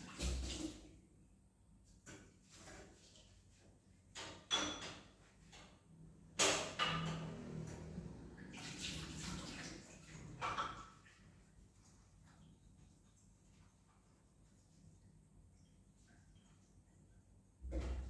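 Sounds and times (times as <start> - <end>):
crockery clattering: 4.2 - 5.2
water running from tap: 7.3 - 14.5.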